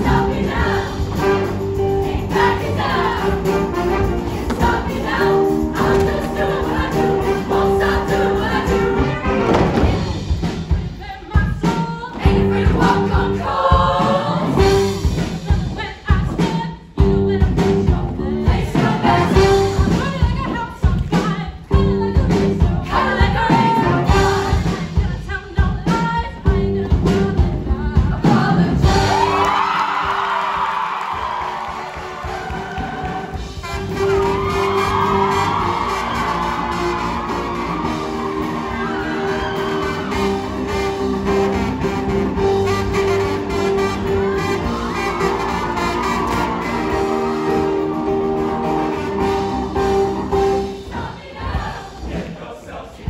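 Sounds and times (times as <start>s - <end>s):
choir singing: 0.0s - 11.3s, 12.0s - 16.1s, 17.8s - 19.7s, 22.6s - 25.0s, 27.8s - 29.4s, 31.2s - 53.0s
drum beat: 0.0s - 17.1s, 27.0s - 48.5s.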